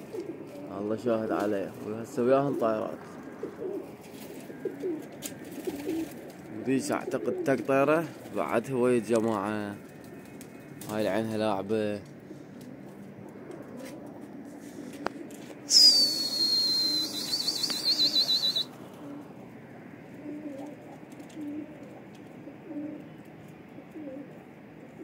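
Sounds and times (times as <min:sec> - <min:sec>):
pigeons cooing: 0:00.0 - 0:08.4, 0:12.0 - 0:25.0
shrill warbling whistle: 0:15.7 - 0:18.7.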